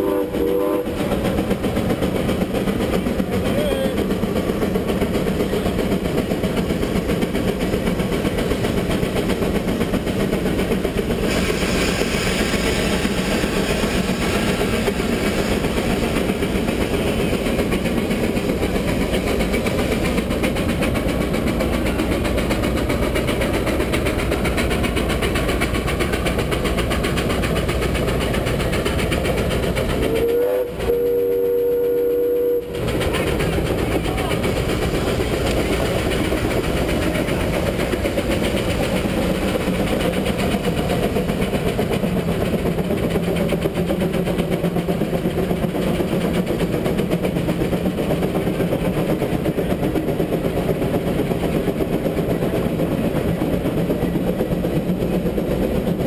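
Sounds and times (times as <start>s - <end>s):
steam whistle: 0.0s - 1.0s, 30.0s - 32.8s
steam traction engine running: 0.0s - 56.0s.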